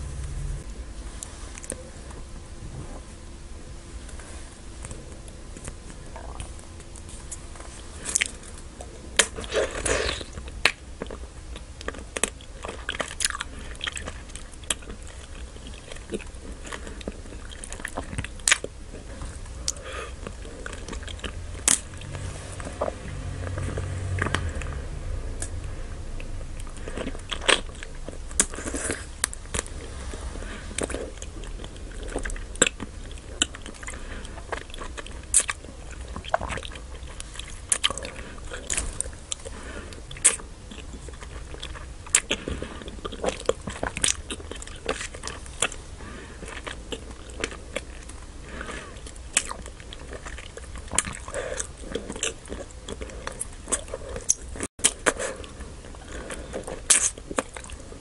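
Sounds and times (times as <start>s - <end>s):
biting and chewing wax candy: 4.8s - 24.8s, 25.4s - 58.0s.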